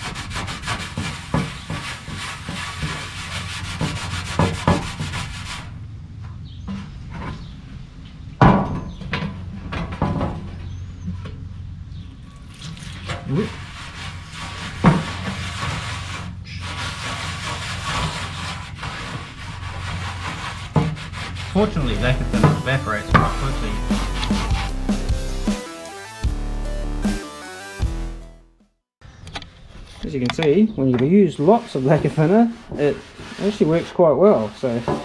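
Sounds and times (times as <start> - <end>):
rag scrubbing on steel: 0.0 - 5.7, 12.4 - 24.8, 31.2 - 35.0.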